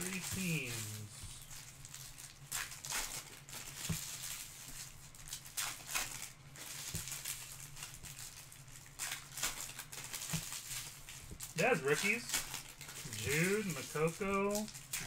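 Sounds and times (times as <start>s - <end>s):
faint low hum: 0.0s - 3.3s, 10.8s - 15.0s.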